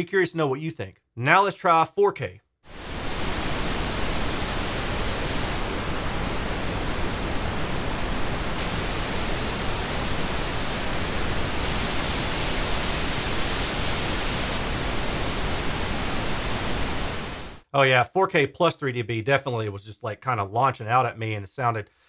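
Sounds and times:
pink noise hiss: 0:02.7 - 0:17.6.

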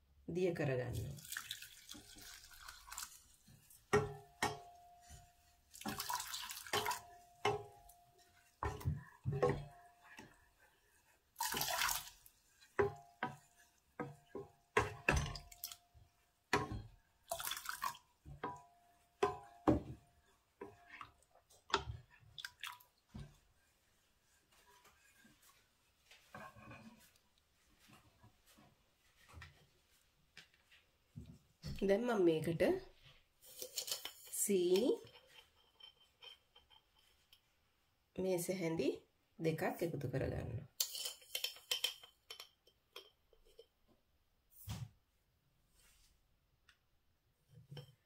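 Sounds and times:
water splashes: 0:01.0 - 0:03.4, 0:05.8 - 0:07.1, 0:11.4 - 0:12.3, 0:17.3 - 0:18.0
wooden spoon knocking steel pan: 0:03.9 - 0:05.3, 0:06.7 - 0:10.3, 0:12.8 - 0:15.5.

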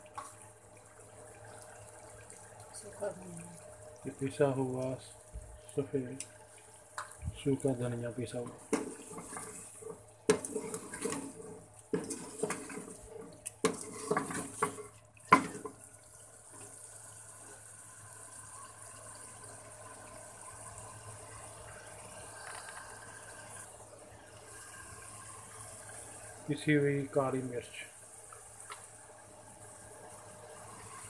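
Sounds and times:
sauce sizzling in pot: 0:00.0 - 0:31.0
spoon scraping metal pot: 0:08.7 - 0:15.6.

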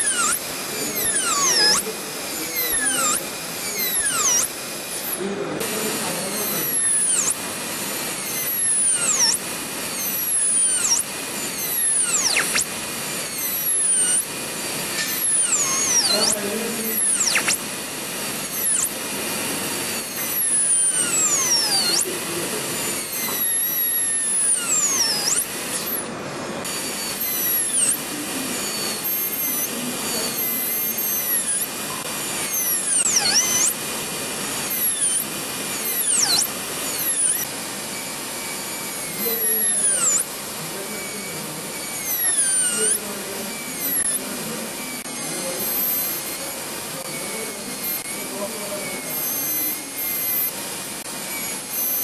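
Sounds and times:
dental drill whining: 0:00.0 - 0:52.0.

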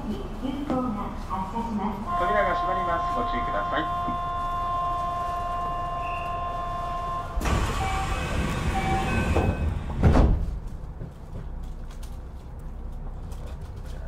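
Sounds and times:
train doors sliding closed: 0:07.3 - 0:10.7
heavy door thud: 0:08.6 - 0:10.6.

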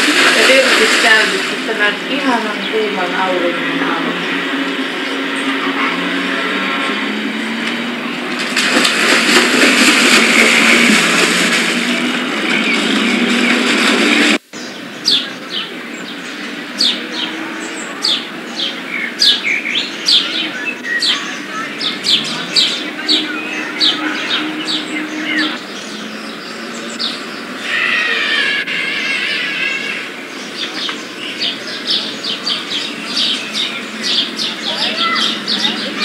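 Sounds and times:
swimmer splashing in pool: 0:00.0 - 0:14.5
birds chirping: 0:00.0 - 0:36.0
low warbling bird call: 0:00.0 - 0:36.0.

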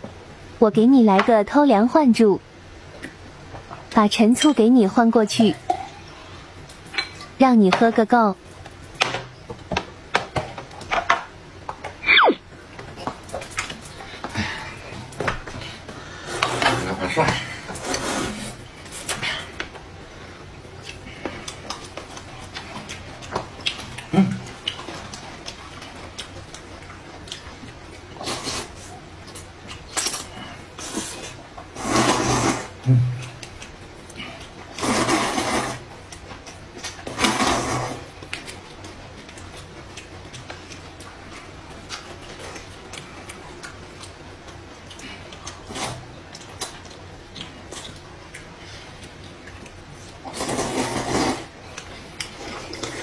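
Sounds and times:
chewing and mouth smacks: 0:20.8 - 0:28.1, 0:38.2 - 0:45.7, 0:46.3 - 0:50.4
noodles being slurped: 0:30.0 - 0:32.8, 0:34.7 - 0:35.8, 0:37.1 - 0:38.1, 0:50.2 - 0:51.6
person humming mm: 0:32.8 - 0:33.4.

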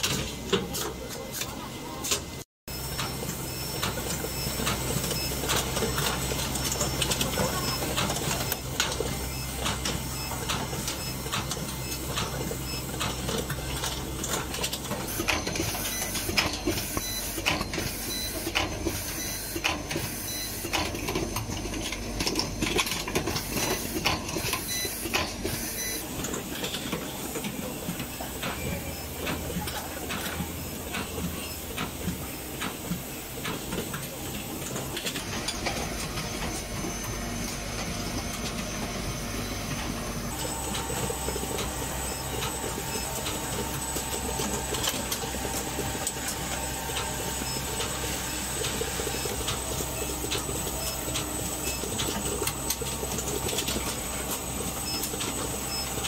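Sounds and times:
machinery low hum: 0:20.3 - 0:56.0.

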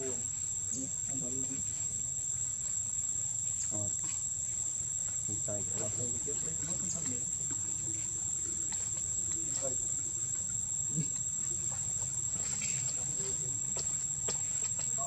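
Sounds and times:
insects droning: 0:00.0 - 0:15.0
faint ticks: 0:06.9 - 0:13.0.

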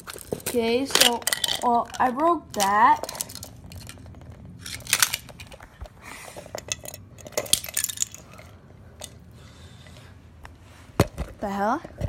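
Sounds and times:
toy parts clattering on tile floor: 0:00.0 - 0:09.2.

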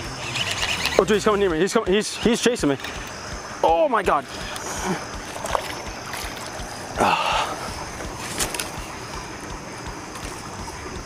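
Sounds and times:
outdoor noise: 0:00.0 - 0:11.0.

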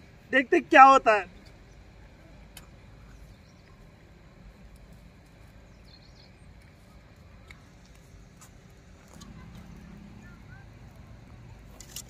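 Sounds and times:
steady low rumble: 0:00.0 - 0:12.0
faint bird chirp: 0:01.5 - 0:04.0, 0:05.6 - 0:07.7.

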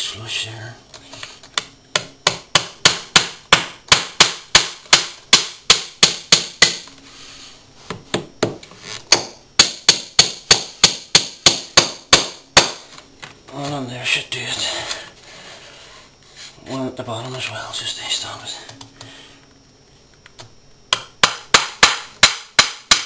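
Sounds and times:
hammer driving nails into wood: 0:20.9 - 0:23.0.

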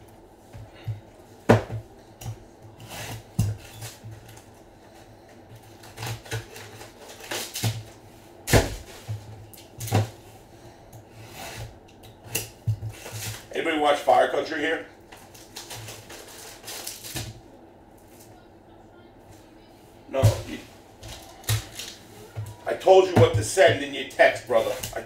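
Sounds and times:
cardboard boxes knocking down: 0:08.5 - 0:09.2.

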